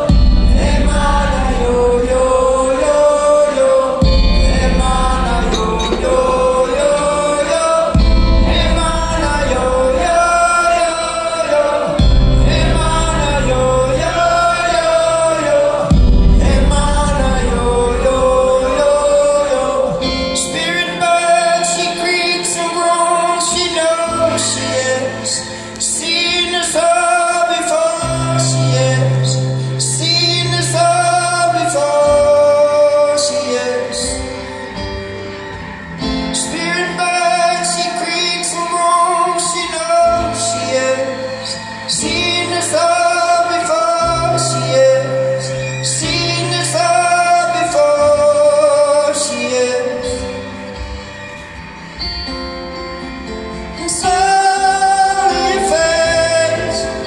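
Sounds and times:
strummed acoustic guitar: 0.0 - 57.0
wordless singing: 0.0 - 57.0.

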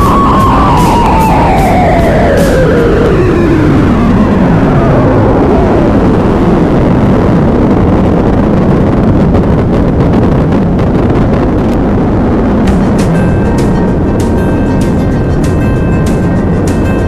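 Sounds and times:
wind noise on microphone: 0.0 - 17.0
motorcycle engine running: 12.6 - 17.0.

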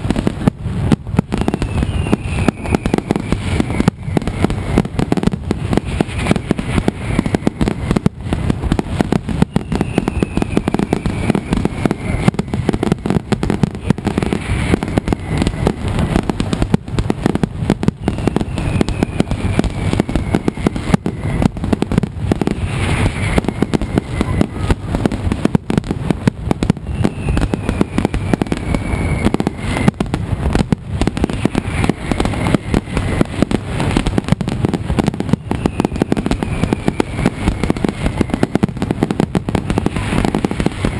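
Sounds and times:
rapid firecracker bangs: 0.0 - 40.9
falling whistles: 1.3 - 5.1, 5.9 - 8.0, 9.3 - 15.9, 17.9 - 21.6, 22.4 - 24.9, 26.7 - 30.1, 31.1 - 33.4, 35.2 - 38.8.

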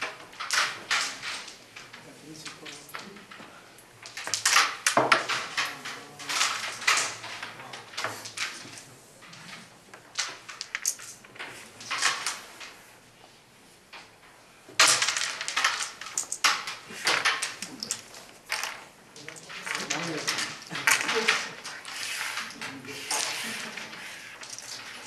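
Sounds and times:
carrom pieces clicking and clattering: 0.0 - 12.9, 13.9 - 25.0.

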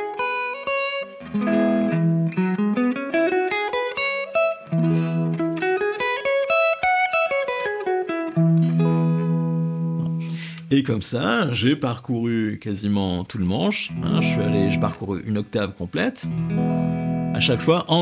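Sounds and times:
electric guitar chords and scale runs: 0.0 - 10.4, 13.9 - 15.0, 16.3 - 18.0.

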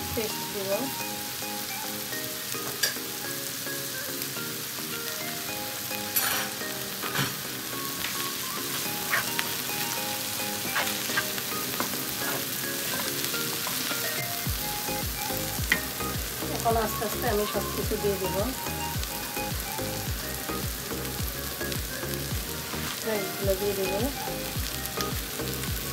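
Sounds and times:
background music: 0.0 - 25.9
vegetables sizzling in a wok: 0.0 - 25.9
wooden spatula scraping a pan: 10.7 - 14.2.

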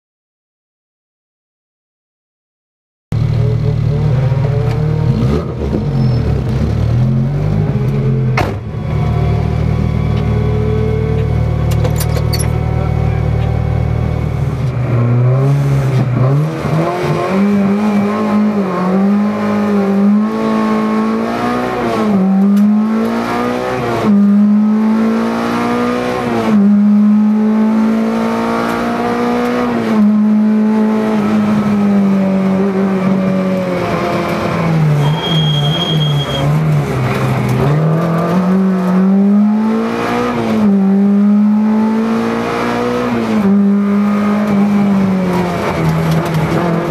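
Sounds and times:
car engine revving: 3.1 - 46.9.

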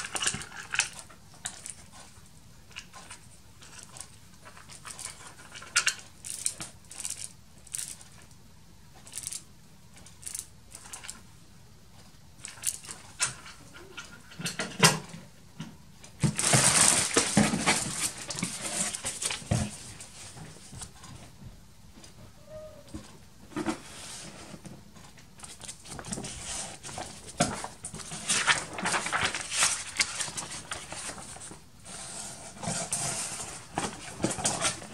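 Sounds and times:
plastic bags crinkling: 16.2 - 20.0, 25.6 - 31.5.

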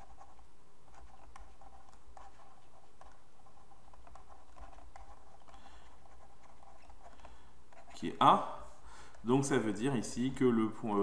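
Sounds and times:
pen tapping and scratching: 0.0 - 8.0.

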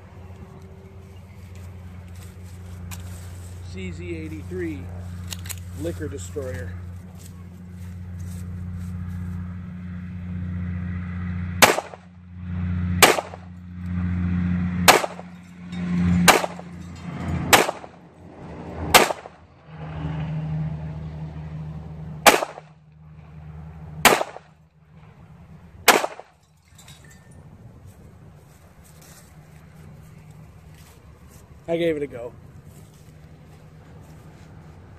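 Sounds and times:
pistol shots: 11.6 - 12.0, 13.0 - 13.4, 14.9 - 15.2, 16.3 - 16.6, 17.5 - 17.9, 18.9 - 19.3, 22.2 - 22.7, 24.0 - 24.5, 25.8 - 26.3.

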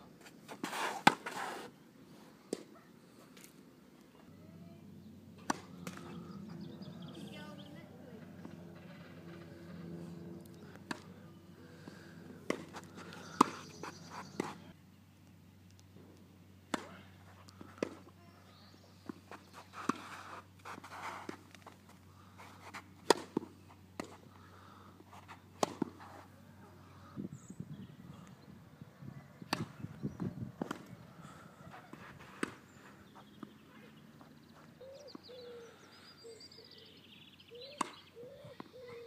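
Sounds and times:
tennis racket striking ball: 5.4 - 6.2, 12.4 - 14.6, 23.0 - 24.2.

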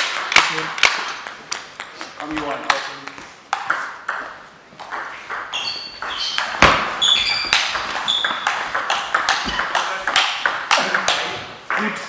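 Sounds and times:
shoes squeaking on floor: 4.9 - 10.1
table tennis ball clicking: 7.4 - 11.8.

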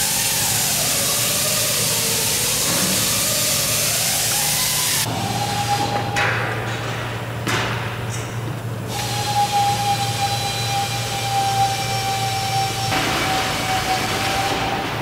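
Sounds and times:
constant low hum: 5.0 - 15.0
machine running with high whine: 8.7 - 15.0.

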